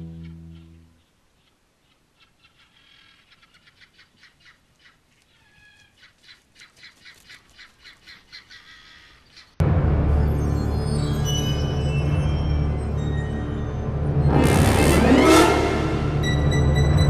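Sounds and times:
young birds peeping: 0:00.0 - 0:09.6.

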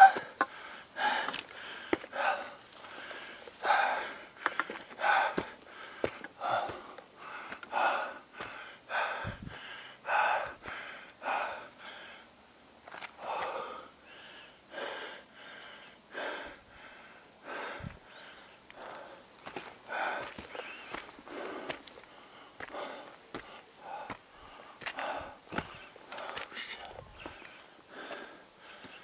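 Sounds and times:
heavy breathing: 0:00.0 - 0:12.3, 0:13.2 - 0:29.0
footfalls on dirt path: 0:04.4 - 0:07.7, 0:19.4 - 0:24.2, 0:24.8 - 0:28.2.

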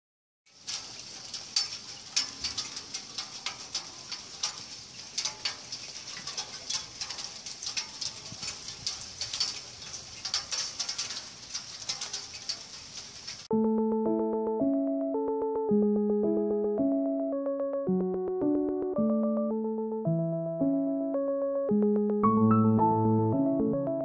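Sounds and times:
light rain hiss: 0:00.5 - 0:13.5
raindrops ticking: 0:00.5 - 0:19.3.

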